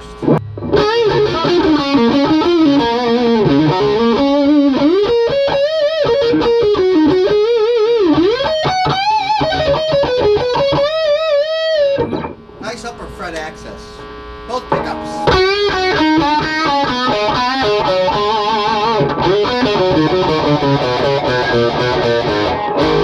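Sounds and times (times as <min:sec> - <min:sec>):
overdriven electric guitar lead: 0:00.0 - 0:12.7, 0:13.7 - 0:23.0.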